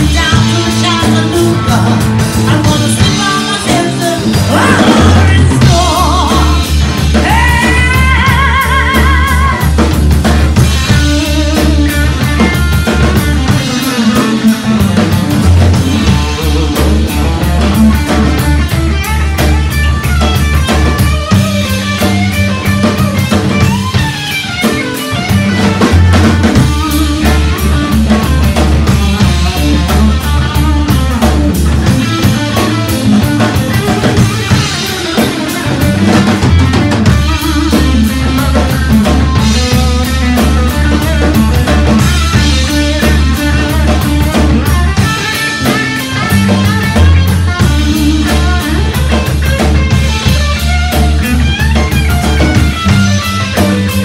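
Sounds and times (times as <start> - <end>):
bass guitar: 0.0 - 54.0
drum kit: 0.0 - 54.0
electric guitar: 0.0 - 54.0.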